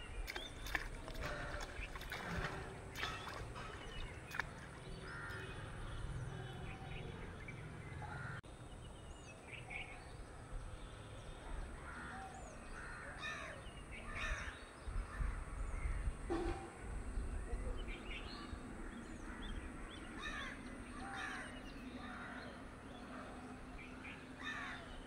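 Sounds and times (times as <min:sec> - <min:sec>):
birds calling and chirping: 0:00.0 - 0:10.3, 0:17.1 - 0:25.0.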